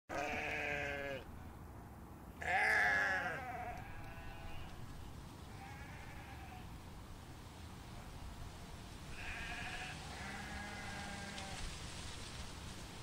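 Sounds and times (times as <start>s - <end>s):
sheep bleating: 0.1s - 1.3s, 2.4s - 4.8s, 5.5s - 6.7s, 9.1s - 11.6s.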